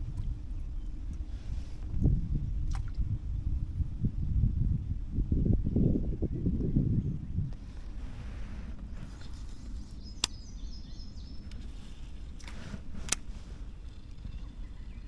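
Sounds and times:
water around a kayak: 0.0s - 15.0s
wind: 0.0s - 15.0s
sharp clicks: 10.2s - 10.4s.

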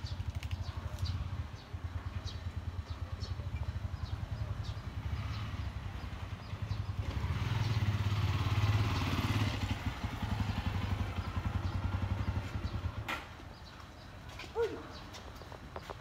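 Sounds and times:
vehicle engine passing: 1.0s - 13.7s.

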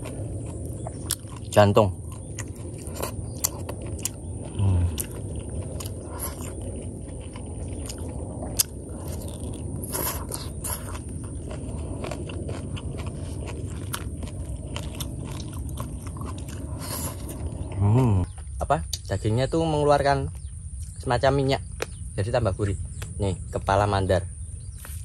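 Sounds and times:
chewing and lip smacks: 0.0s - 19.1s
low voiced hum: 0.0s - 25.0s.

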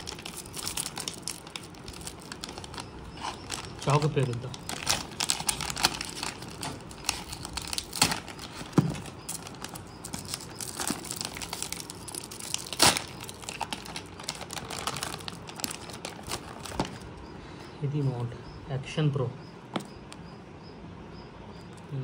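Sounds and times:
knife cutting plastic: 0.0s - 17.0s
plastic pouch crinkling: 0.0s - 17.2s.

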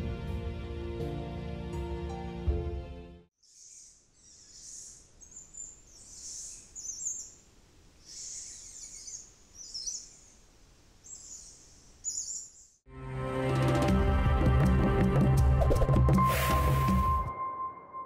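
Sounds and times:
lorikeets chirping: 3.4s - 12.8s
faint background hiss: 3.5s - 12.8s.

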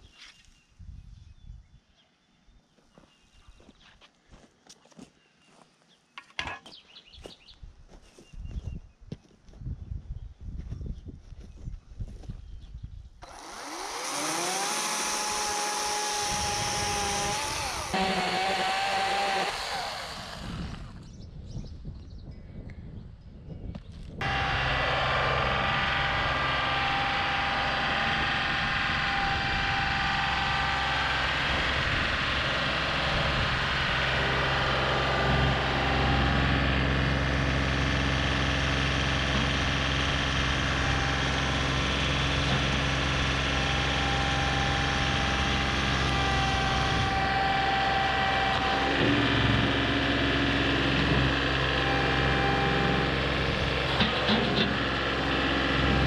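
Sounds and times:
tractor diesel engine running: 13.2s - 21.1s, 24.2s - 56.0s.

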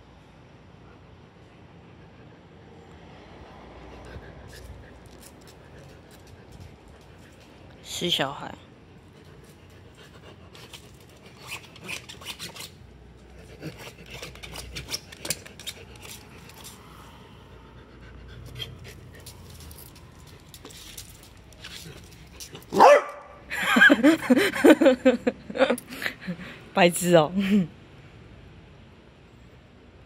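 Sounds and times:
dog barking and yelping: 22.5s - 23.5s.

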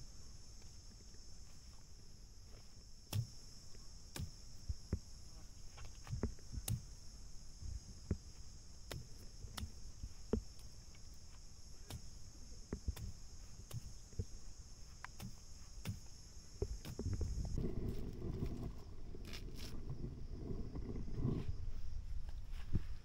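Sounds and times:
insects droning: 0.0s - 23.0s
stick striking plants: 3.1s - 3.4s, 4.1s - 5.1s, 5.8s - 7.0s, 8.0s - 17.5s.

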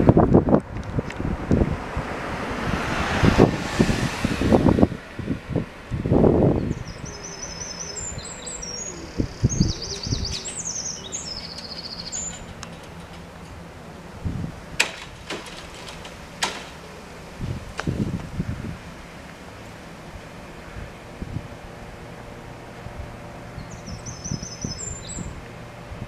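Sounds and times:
wind buffeting microphone: 0.0s - 26.0s
songbird chirping and trilling: 6.5s - 13.2s, 23.5s - 25.4s.

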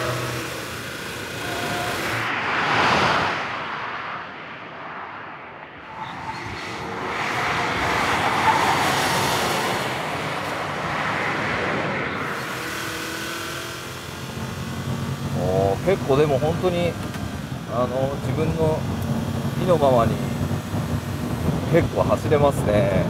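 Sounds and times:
car passing at speed: 0.0s - 23.0s
tyre and wind noise: 14.2s - 23.0s.

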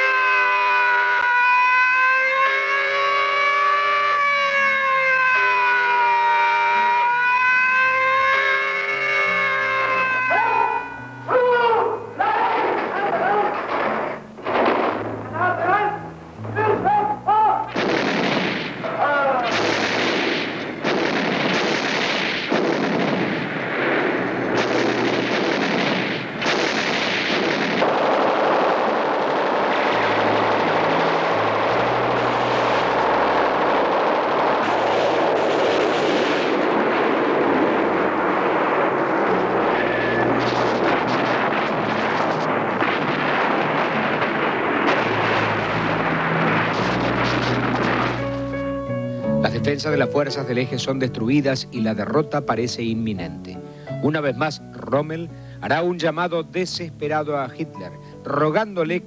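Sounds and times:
gunfire and explosions barrage: 4.5s - 15.9s, 16.5s - 50.7s
heavy artillery blasts: 12.2s - 15.7s, 17.7s - 50.0s.

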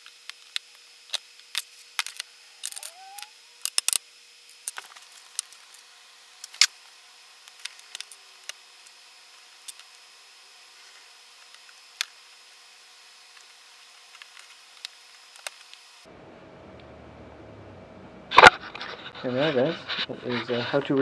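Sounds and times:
plastic propeller blades clicking: 2.0s - 4.0s
plastic rubbing squeak: 2.6s - 3.4s.

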